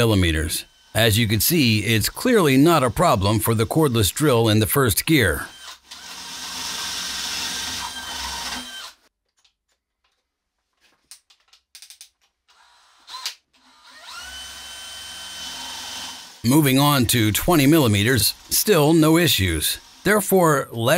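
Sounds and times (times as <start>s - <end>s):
drill boring into wood: 0.6s - 4.4s, 5.2s - 9.0s, 12.5s - 20.4s.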